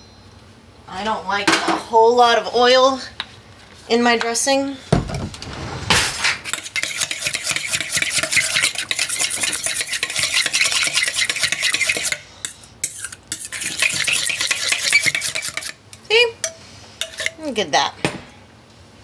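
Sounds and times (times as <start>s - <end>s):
whisk scraping metal bowl: 6.4s - 15.8s, 17.0s - 17.4s.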